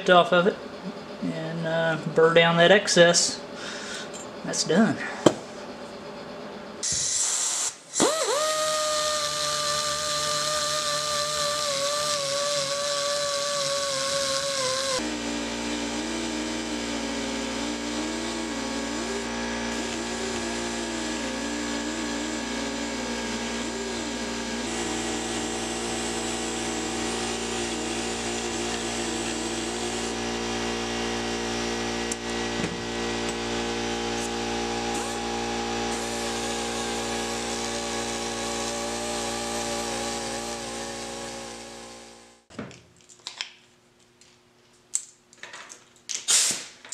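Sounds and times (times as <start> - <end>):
die grinder whining: 6.8 - 42.5
sustained tones with wavering pitch: 13.9 - 42.4.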